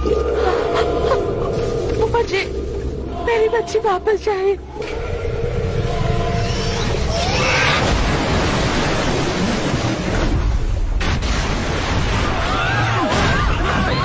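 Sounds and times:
rumbling churning water: 0.0 - 14.0
people screaming: 5.9 - 7.9, 12.2 - 14.0.

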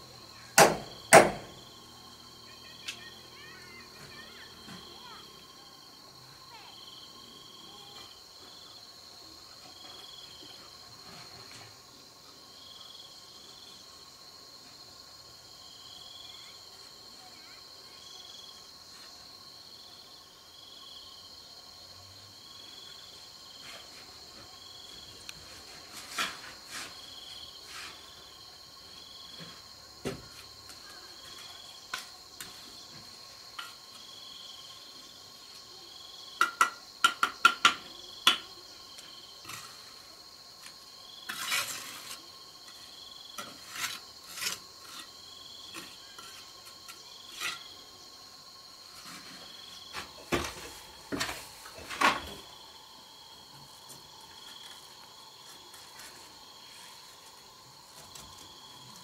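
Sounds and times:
insect chorus: 0.0 - 59.0
sharp taps and knocks: 36.4 - 38.4.

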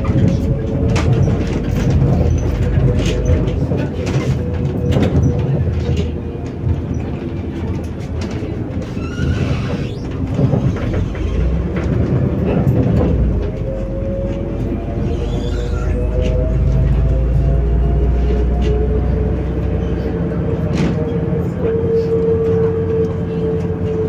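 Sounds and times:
bus engine rumble and whine: 0.0 - 24.0.

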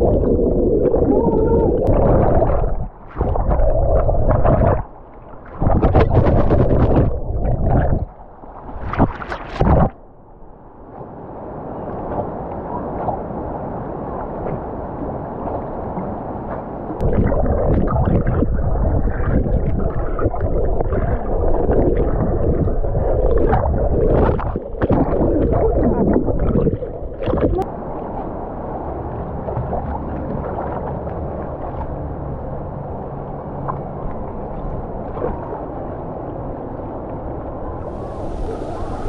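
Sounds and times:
muffled underwater gurgling: 0.0 - 8.2, 17.0 - 27.8, 37.8 - 39.0.

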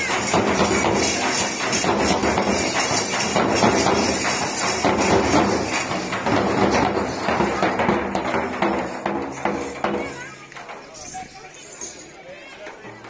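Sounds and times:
hand cymbals clashing: 0.0 - 12.2
drums beating: 0.0 - 13.0.

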